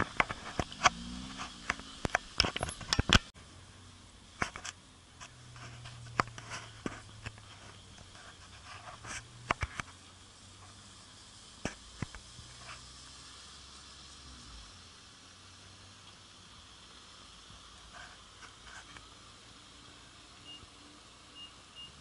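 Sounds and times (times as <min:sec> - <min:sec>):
sharp clicks and knocks: 0:00.0 - 0:03.3
low car engine hum: 0:00.0 - 0:22.0.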